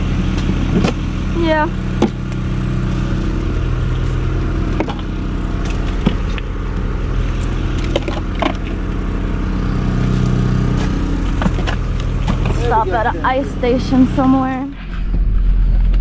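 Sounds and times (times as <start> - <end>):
engine idling: 0.0 - 16.0
knocks and clunks of gear: 7.8 - 8.8, 10.7 - 12.6.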